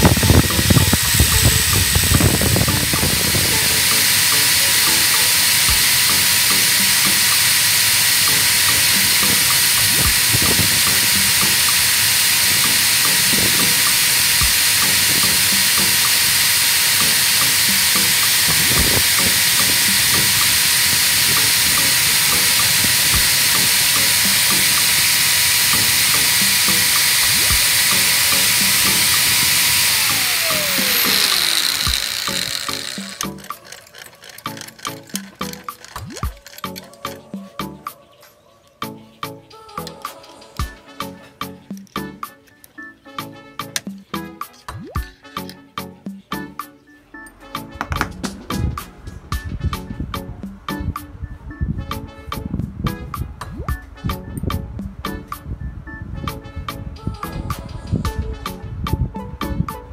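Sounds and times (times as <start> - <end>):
angle grinder grinding metal: 0.0 - 37.8, 47.4 - 49.9
thin motor whine: 0.0 - 37.8.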